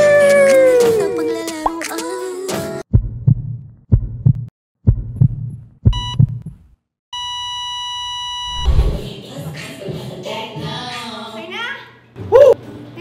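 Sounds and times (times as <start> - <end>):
music: 0.7 - 2.8, 9.1 - 12.9
heartbeat thumps: 2.9 - 6.6, 8.5 - 9.1
beeps: 6.0 - 6.3, 7.2 - 9.1
low rumble: 8.5 - 9.1.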